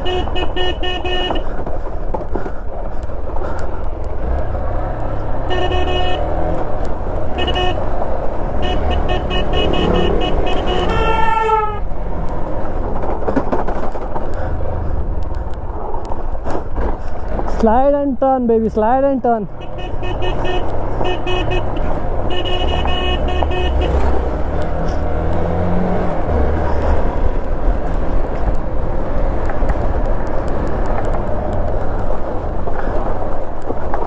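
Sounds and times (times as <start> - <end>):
short horn toots: 5.5 - 6.3, 7.4 - 7.8, 8.6 - 11.8, 19.6 - 24.0.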